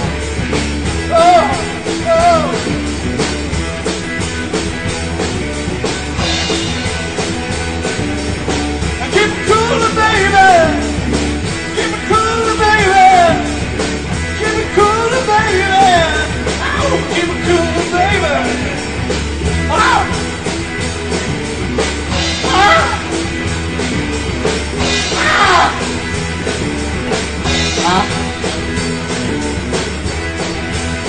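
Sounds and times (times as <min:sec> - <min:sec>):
drums keeping a steady beat: 0:00.0 - 0:31.0
live rock band playing: 0:00.0 - 0:31.0
person singing: 0:01.1 - 0:02.7, 0:22.4 - 0:23.1.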